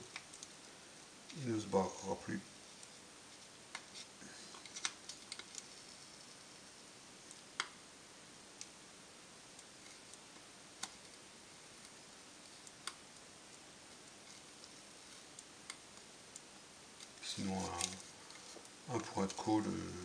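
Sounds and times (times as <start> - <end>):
small clicks and ticks: 0.0 - 1.4, 3.7 - 6.6, 7.2 - 7.8, 9.5 - 11.2, 11.8 - 19.5
steady low hiss: 0.0 - 20.0.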